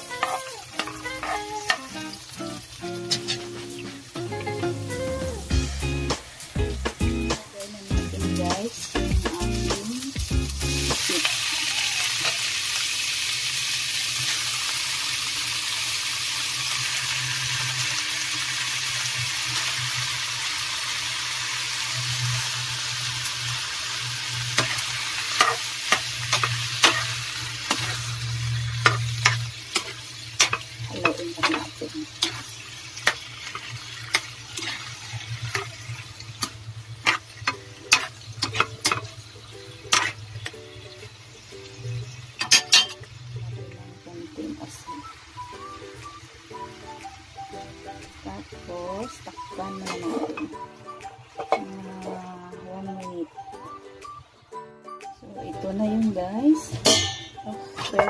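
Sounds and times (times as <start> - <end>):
metal spatula scraping pan: 0.0 - 1.9, 3.0 - 3.8, 24.5 - 39.2, 39.9 - 40.2, 42.4 - 43.1
squid sizzling in frying pan: 0.0 - 4.8, 5.4 - 52.6, 56.3 - 58.0.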